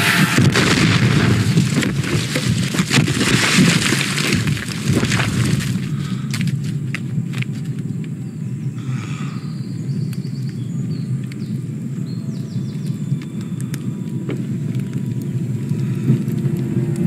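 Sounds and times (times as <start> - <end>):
steady low rumble: 0.0 - 17.0
faint high clicks and chirps: 6.2 - 17.0.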